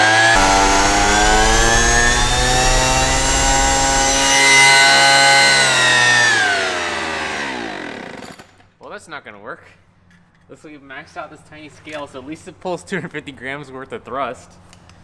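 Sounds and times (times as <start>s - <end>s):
leaf blower fan whine: 0.0s - 7.8s.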